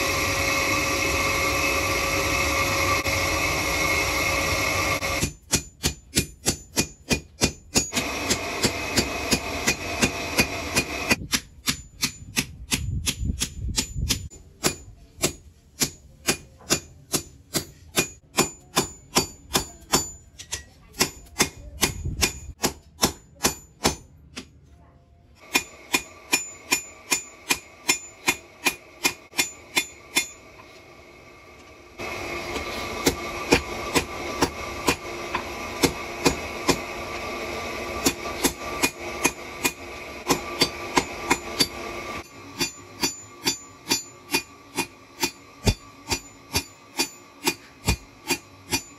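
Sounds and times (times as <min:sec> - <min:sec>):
hammer striking metal on anvil: 0:04.7 - 0:24.5, 0:25.4 - 0:30.8, 0:32.5 - 0:36.9, 0:38.0 - 0:48.9.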